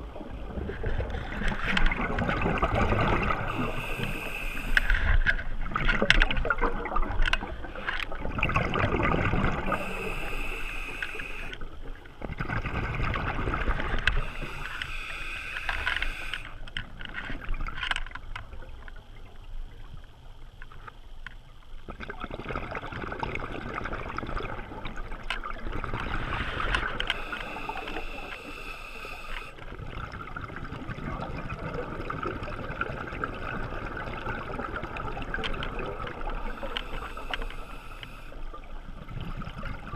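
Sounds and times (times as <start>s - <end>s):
exhaled bubbles gurgling: 0.0s - 16.6s, 21.8s - 39.9s
regulator hissing on inhale: 3.3s - 5.3s, 9.6s - 11.7s, 14.1s - 16.7s, 26.2s - 29.6s, 36.4s - 38.5s.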